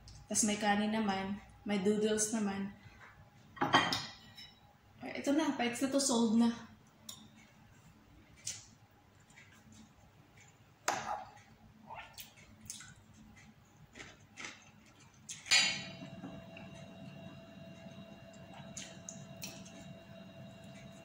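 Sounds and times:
steady low hum: 14.9 - 21.0.

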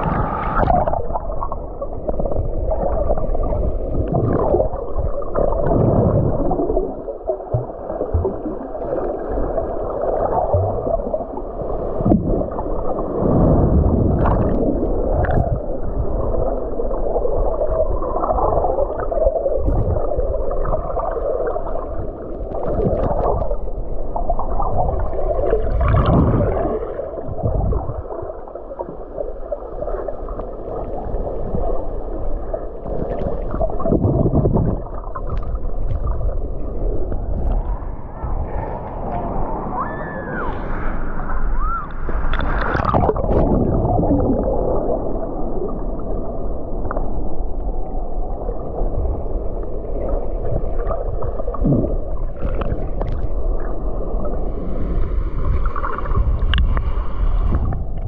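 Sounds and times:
muffled water sloshing and gurgling: 0.0 - 58.0.

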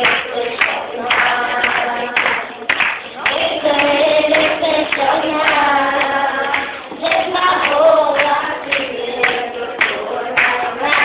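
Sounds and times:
group of voices singing: 0.0 - 11.0
hand claps: 0.0 - 11.0.

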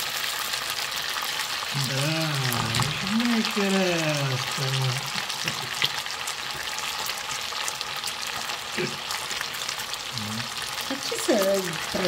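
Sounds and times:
meat sizzling in oil: 0.0 - 12.0.

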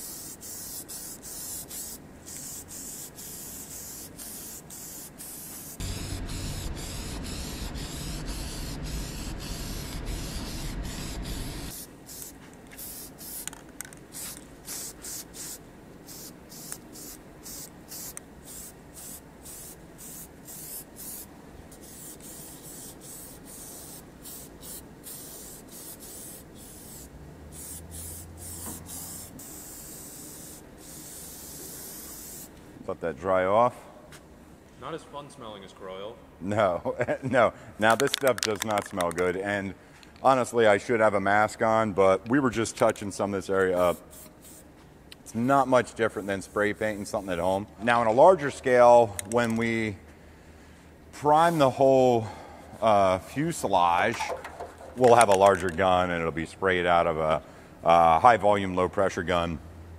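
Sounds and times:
aerosol spray can hissing: 0.0 - 32.5, 43.8 - 44.7.

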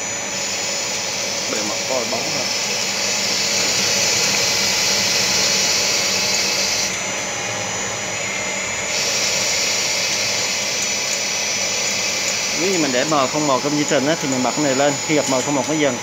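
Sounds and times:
lathe machine whir: 0.0 - 16.0
high cutting hiss: 8.9 - 16.0.

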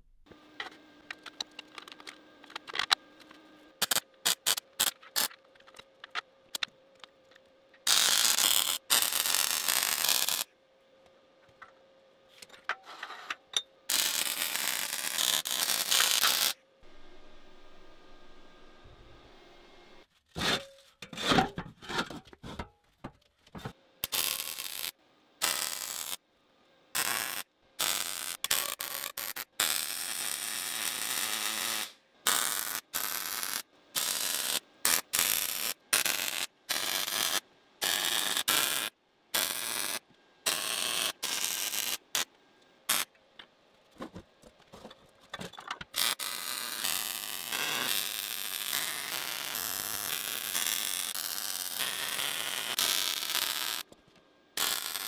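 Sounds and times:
arc welding crackling hiss: 3.8 - 5.4, 7.8 - 10.5, 13.9 - 20.1, 24.0 - 26.2, 27.0 - 43.1, 45.9 - 53.9, 54.6 - 55.0.

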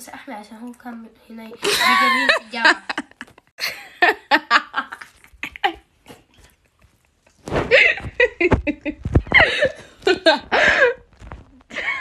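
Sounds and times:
girl talking and laughing: 1.3 - 6.0, 7.7 - 11.0.

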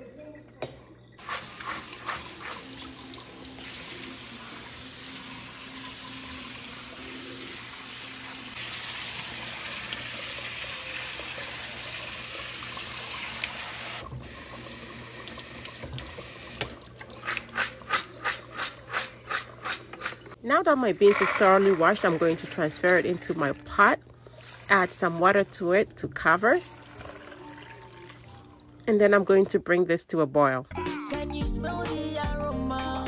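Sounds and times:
faucet water splashing: 1.2 - 18.9, 21.0 - 28.7.

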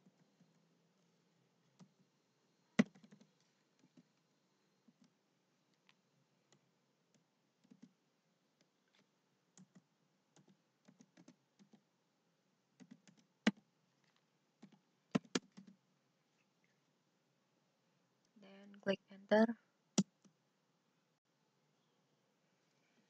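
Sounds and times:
computer keyboard keystrokes: 12.8 - 13.6, 14.6 - 15.8.

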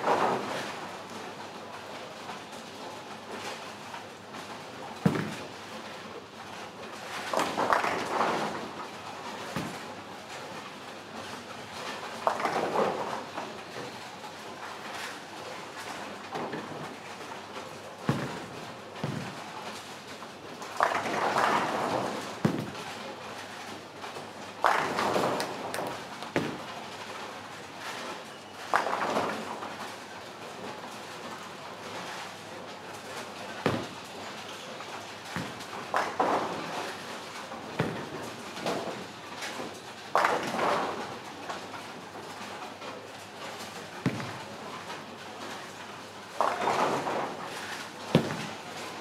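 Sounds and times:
bowling pins crashing: 48.1 - 48.6.

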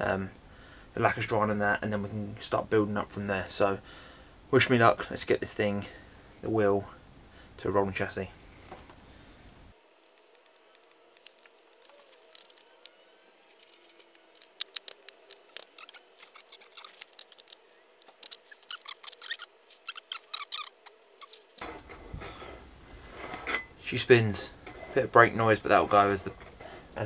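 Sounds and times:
metallic clicks of hand tools: 13.5 - 20.7.

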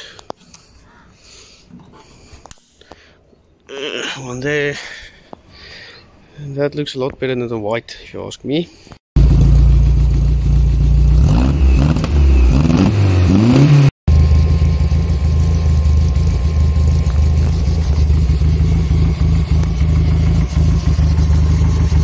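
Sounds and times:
car engine running: 9.2 - 13.4, 14.1 - 22.0.

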